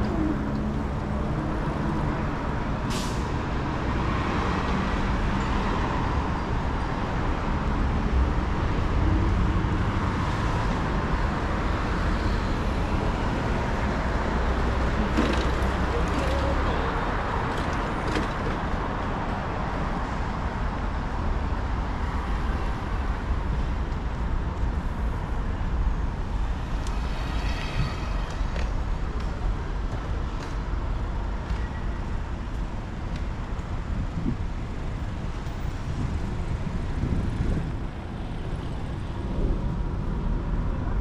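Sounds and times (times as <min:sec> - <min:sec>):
city traffic rumble: 0:00.0 - 0:41.0.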